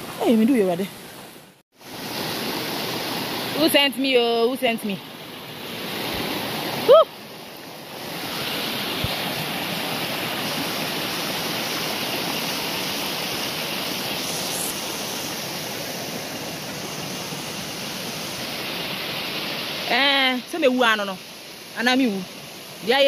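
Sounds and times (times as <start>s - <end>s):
stream tumbling over stones: 1.8s - 23.0s.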